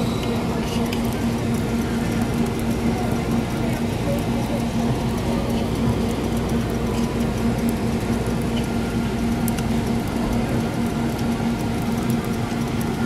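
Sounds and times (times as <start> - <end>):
steady low hum: 0.0 - 13.0
faint ticks: 3.6 - 13.0.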